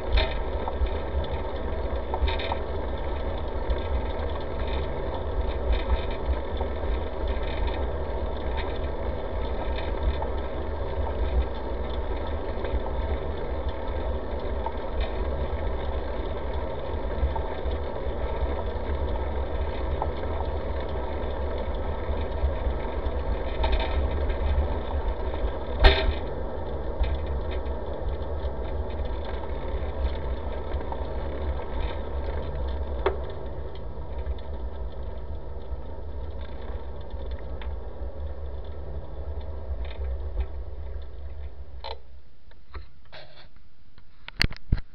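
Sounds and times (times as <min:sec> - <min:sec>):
bicycle riding rumble and rattle: 0:00.0 - 0:44.9.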